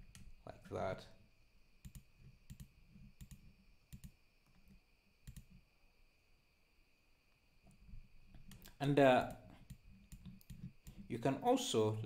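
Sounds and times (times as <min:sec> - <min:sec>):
computer mouse clicks: 0:01.8 - 0:05.6, 0:08.4 - 0:11.1.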